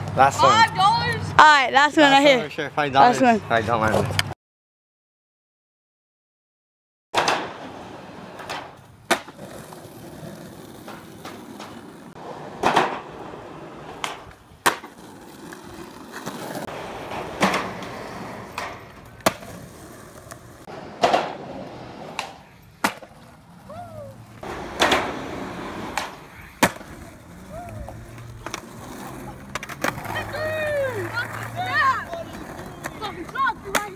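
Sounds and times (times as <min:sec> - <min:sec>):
skateboard tail clacks: 0:07.2 - 0:23.6, 0:24.2 - 0:33.9
skateboard wheels rolling on asphalt: 0:07.2 - 0:33.9.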